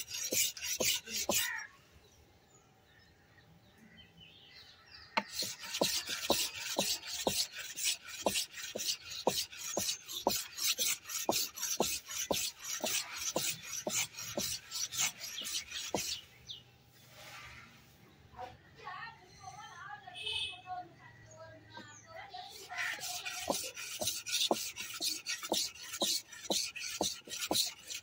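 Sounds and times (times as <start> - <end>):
blade scraping on wooden board: 0.0 - 1.7, 5.2 - 17.6, 21.7 - 28.0.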